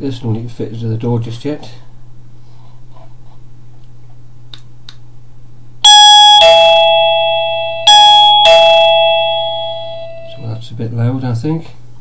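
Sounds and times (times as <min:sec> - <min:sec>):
low steady hum: 0:00.0 - 0:12.0
doorbell ding-dong chime: 0:05.9 - 0:10.5.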